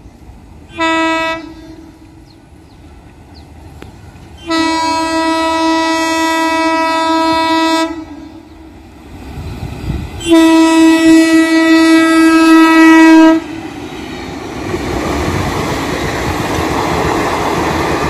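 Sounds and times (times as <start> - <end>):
locomotive horn blasts: 0.7 - 2.2, 4.4 - 8.5, 10.2 - 13.5.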